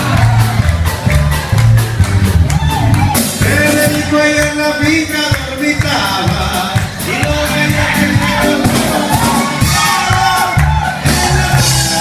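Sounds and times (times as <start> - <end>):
marimba orchestra dance music: 0.0 - 12.0.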